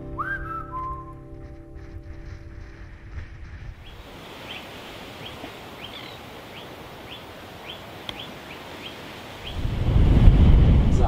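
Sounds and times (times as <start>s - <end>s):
background hiss: 1.8s - 10.7s
bird chirping: 3.8s - 9.7s.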